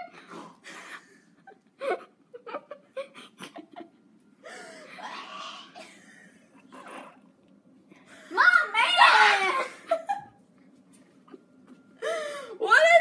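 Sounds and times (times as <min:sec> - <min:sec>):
girls giggling and laughing: 0:01.2 - 0:04.2, 0:09.3 - 0:10.4.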